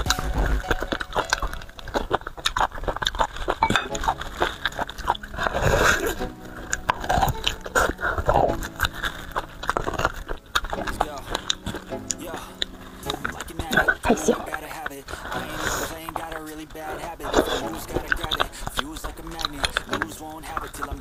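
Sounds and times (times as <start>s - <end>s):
mouth clicks and smacks: 0.0s - 21.0s
wet chewing and biting: 0.0s - 21.0s.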